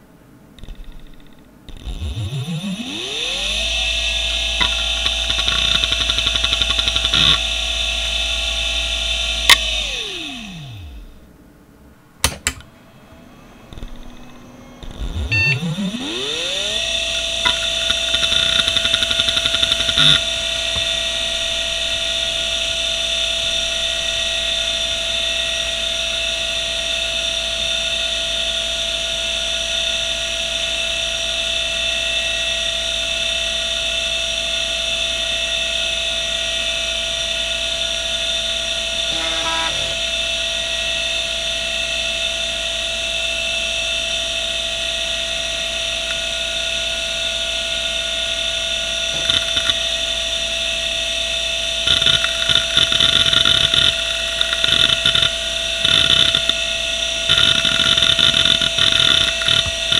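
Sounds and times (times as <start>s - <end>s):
hard drive spindle whine: 0.6s - 11.4s, 12.6s - 59.9s
hard drive heads ticking: 4.2s - 7.6s, 14.8s - 21.0s, 51.9s - 59.9s
harsh bearing hiss: 39.0s - 40.2s.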